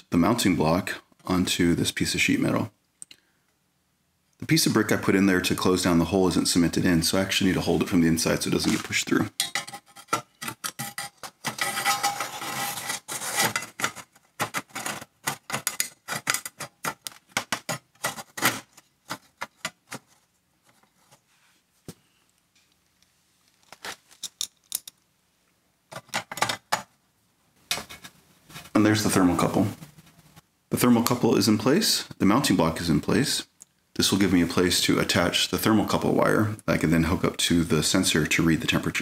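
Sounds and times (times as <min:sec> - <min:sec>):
small metal parts clicking: 0:23.6 - 0:25.0.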